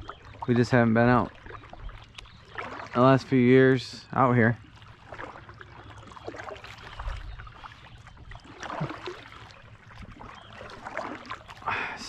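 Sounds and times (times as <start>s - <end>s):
water dripping: 0.0s - 3.3s, 4.6s - 12.0s
paddle splashing in water: 0.0s - 3.5s, 4.6s - 12.0s.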